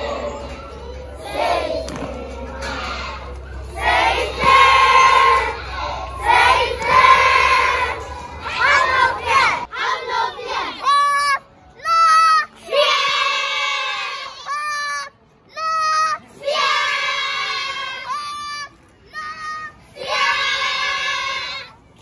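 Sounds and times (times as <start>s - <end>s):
children singing together: 0.0s - 11.4s
child singing held notes: 0.0s - 21.7s.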